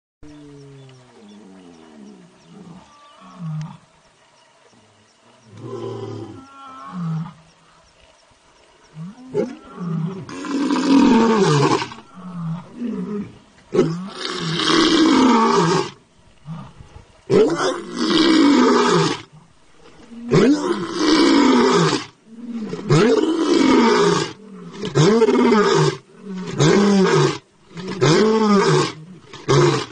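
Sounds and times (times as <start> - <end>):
tiger roaring: 9.1 - 29.9.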